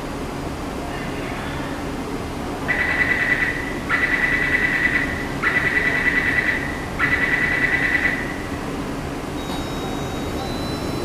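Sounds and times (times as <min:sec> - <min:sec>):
warbling electronic door warning beep: 0:09.4 - 0:11.0.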